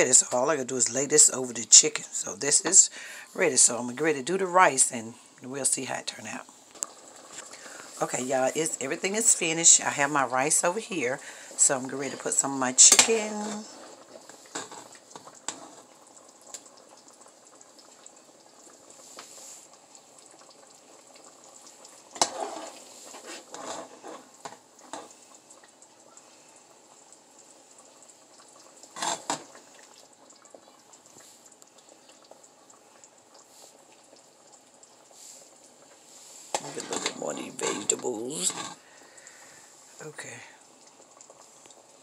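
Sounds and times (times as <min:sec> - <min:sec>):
gravy bubbling: 0:00.0 - 0:42.0
metal spoon scraping a pot: 0:22.2 - 0:25.1, 0:36.5 - 0:38.8.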